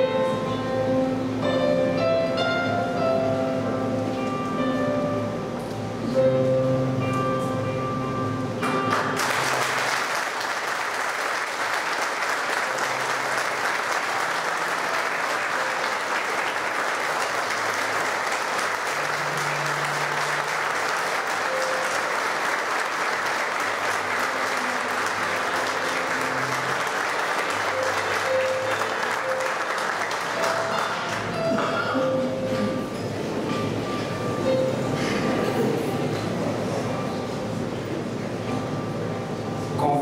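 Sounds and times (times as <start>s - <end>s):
music playing: 0.0s - 40.0s
audience applause: 8.9s - 31.4s.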